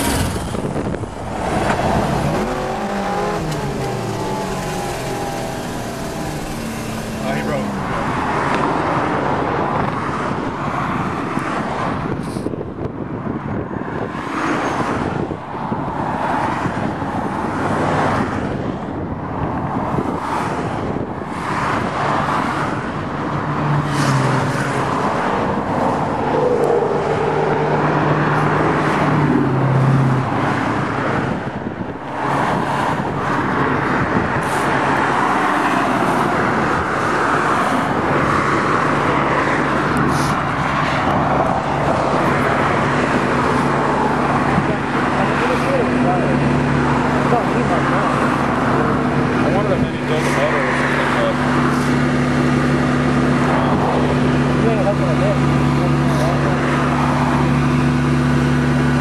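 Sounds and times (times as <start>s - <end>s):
car engine hum: 0.0s - 59.0s
road traffic: 0.0s - 59.0s.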